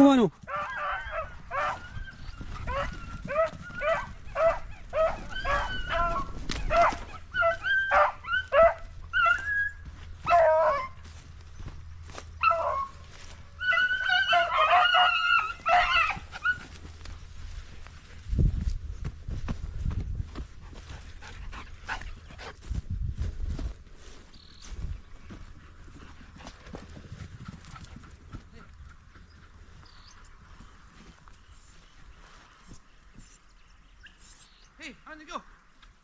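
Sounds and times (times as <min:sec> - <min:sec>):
hounds baying and yelping: 0:00.4 - 0:18.1.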